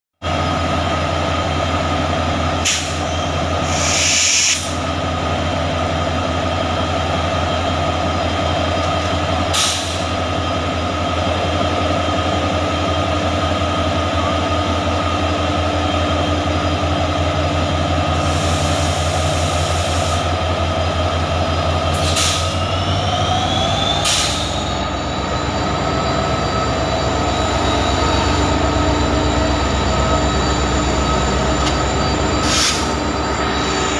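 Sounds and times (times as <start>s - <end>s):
diesel locomotive engine throbbing: 0.2s - 33.9s
air hissing: 3.7s - 4.8s
high whine: 22.6s - 33.9s.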